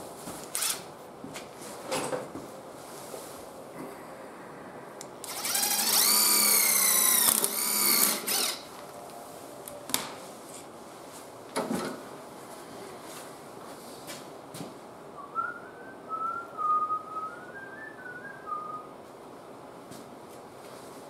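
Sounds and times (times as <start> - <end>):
cordless drill motor whine: 5.2 - 8.7.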